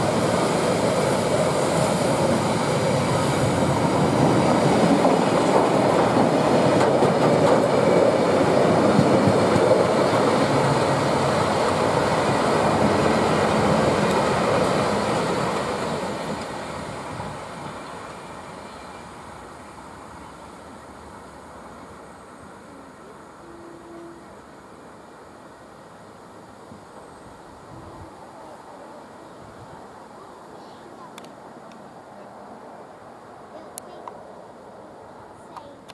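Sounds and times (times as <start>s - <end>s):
train wagons rolling rattle: 3.5s - 16.8s.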